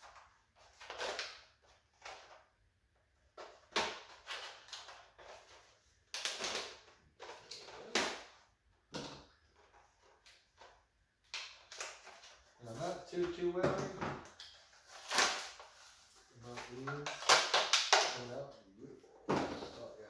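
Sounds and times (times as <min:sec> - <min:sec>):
sharp plastic cracks: 0:06.1 - 0:06.8, 0:16.9 - 0:18.2.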